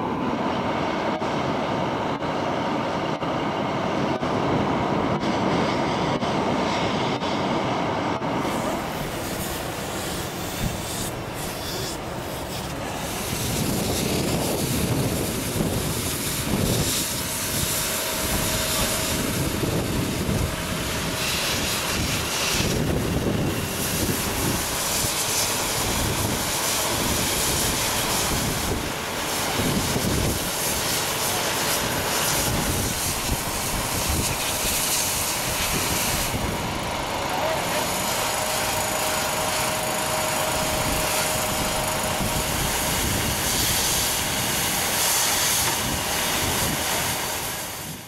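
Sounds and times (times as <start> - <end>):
fire hose spraying water: 8.4 - 48.0.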